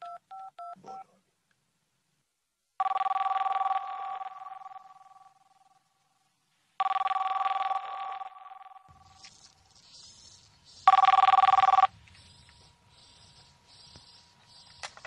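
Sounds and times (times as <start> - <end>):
telephone ringing: 2.8 - 5.7, 6.8 - 9.1, 10.9 - 11.9.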